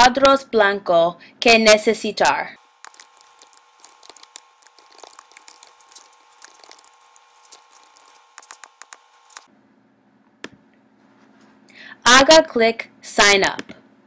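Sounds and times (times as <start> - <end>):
faint steady hum: 0.0 - 14.0
keyboard typing: 2.8 - 9.5.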